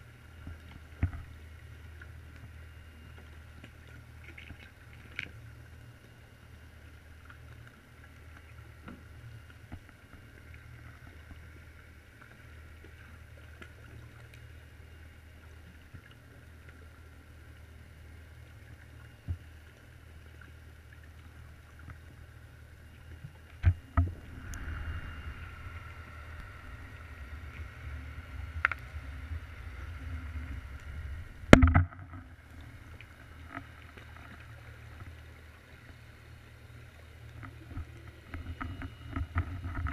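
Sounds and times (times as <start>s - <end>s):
low underwater hum: 0.0s - 39.9s
underwater rumble: 0.0s - 39.9s
faint hiss: 24.1s - 31.6s.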